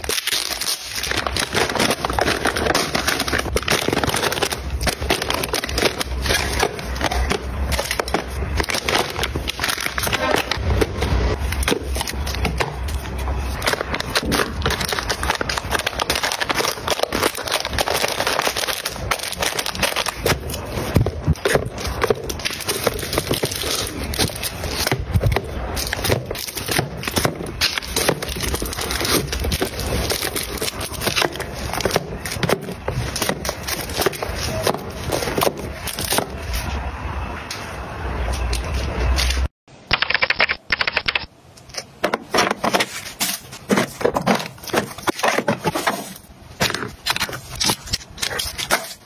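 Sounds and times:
packaging crinkling: 0.0s - 36.2s.

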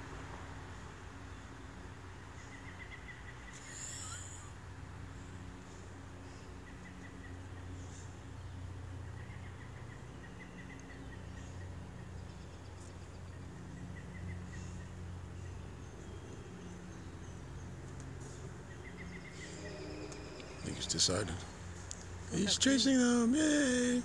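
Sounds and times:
steady low hum: 0.0s - 24.0s
faint high chirps: 18.8s - 21.5s.

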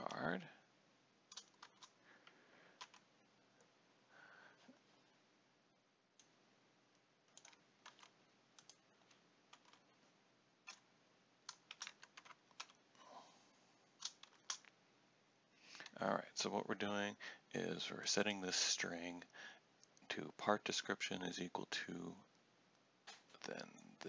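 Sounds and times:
faint keyboard typing: 1.2s - 3.8s, 6.1s - 13.0s, 14.0s - 14.8s.

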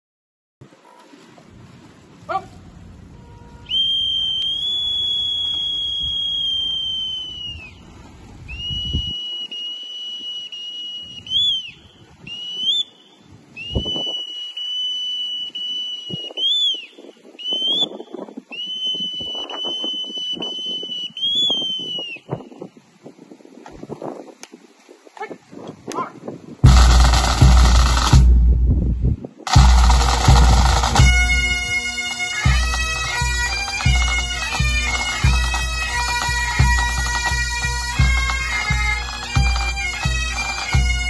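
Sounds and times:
whistle long high notes: 3.6s - 7.8s, 8.5s - 22.6s, 29.5s - 41.0s
whistle upward chirps: 3.6s - 7.8s, 8.5s - 22.6s.

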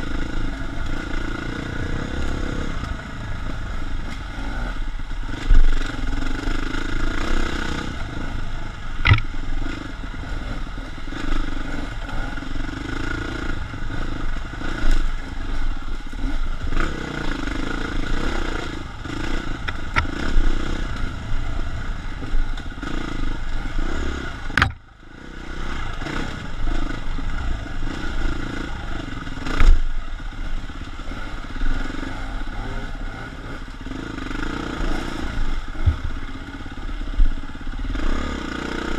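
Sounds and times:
dirt bike engine revving: 0.0s - 38.9s
sharp knocks: 9.0s - 9.3s, 24.6s - 24.8s.

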